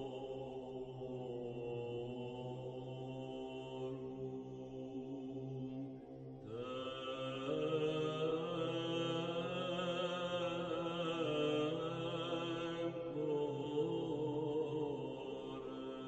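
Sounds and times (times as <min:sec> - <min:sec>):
slow vocal chant: 0:00.0 - 0:16.0.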